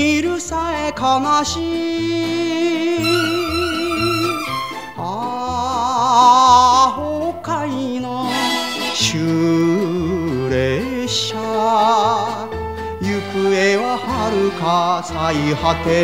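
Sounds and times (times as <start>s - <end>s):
ballad lead melody with vibrato: 1.6s - 16.0s
stepping bass line: 3.0s - 5.7s.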